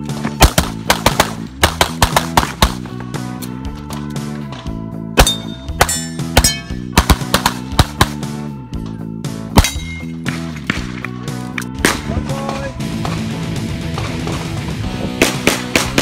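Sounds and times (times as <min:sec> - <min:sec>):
background music: 0:00.0 - 0:16.0
pistol shots: 0:00.4 - 0:02.9, 0:05.2 - 0:08.3, 0:15.2 - 0:16.0.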